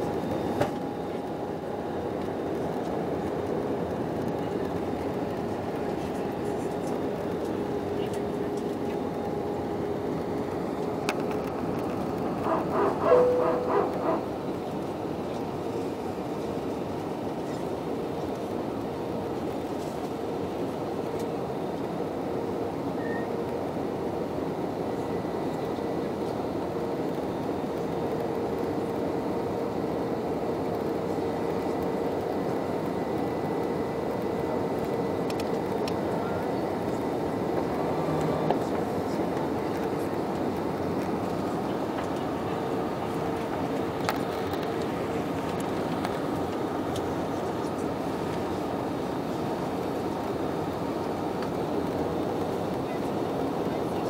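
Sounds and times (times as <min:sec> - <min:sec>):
jet engines and airflow rushing: 0:00.0 - 0:54.0.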